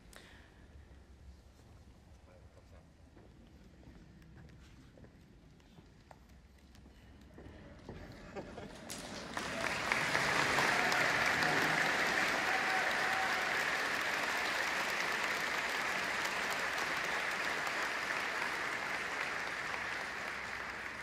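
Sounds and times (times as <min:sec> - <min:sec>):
audience clapping: 0:08.7 - 0:21.0.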